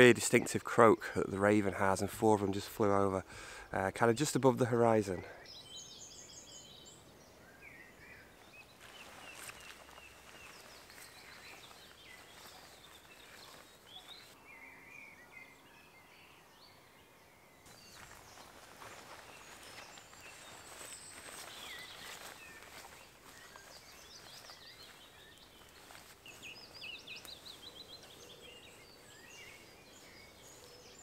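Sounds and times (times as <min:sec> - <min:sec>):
songbirds chirping: 0:00.0 - 0:31.0.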